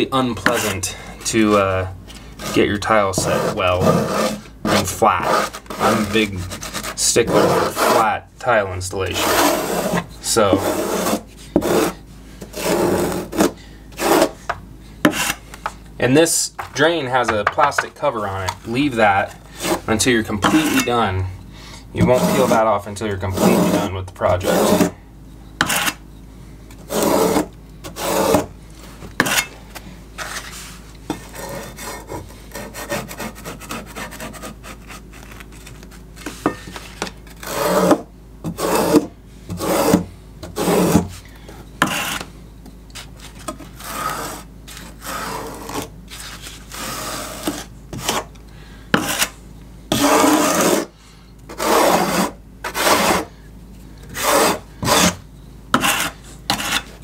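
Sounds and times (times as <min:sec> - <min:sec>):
trowel scraping over membrane: 0:00.4 - 0:14.5, 0:15.1 - 0:15.4, 0:18.8 - 0:21.1, 0:22.0 - 0:25.0, 0:25.6 - 0:26.0, 0:26.9 - 0:28.5, 0:30.2 - 0:41.2, 0:41.8 - 0:42.3, 0:43.0 - 0:48.3, 0:49.0 - 0:50.9, 0:51.5 - 0:53.3, 0:54.1 - 0:55.2, 0:55.8 - 0:57.0.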